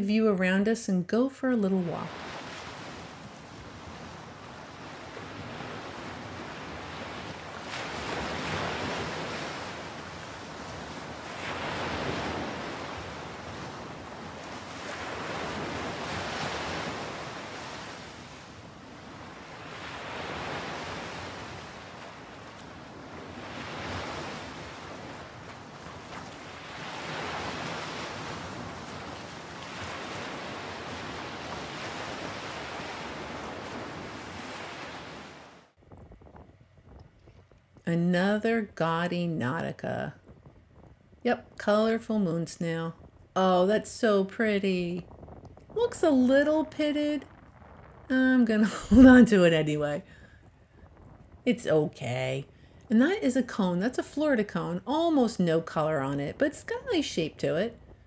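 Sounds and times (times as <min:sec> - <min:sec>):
surf breaking on beach: 0:02.0 - 0:36.2.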